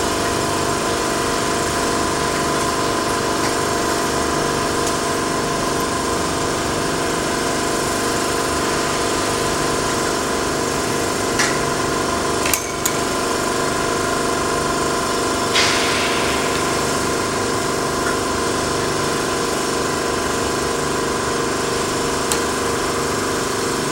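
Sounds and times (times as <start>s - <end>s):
industrial machinery hum: 0.0s - 23.9s.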